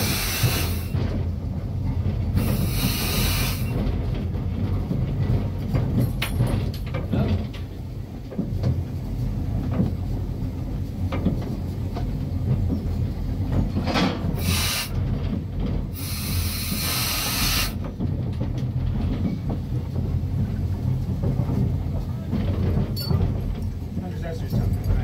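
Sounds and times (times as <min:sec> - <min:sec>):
loud steam hiss: 0:00.0 - 0:01.0, 0:02.4 - 0:03.8, 0:14.3 - 0:15.0, 0:15.9 - 0:17.9
steam locomotive rumble: 0:00.0 - 0:25.0
wheels clicking over rail joints: 0:00.0 - 0:25.0.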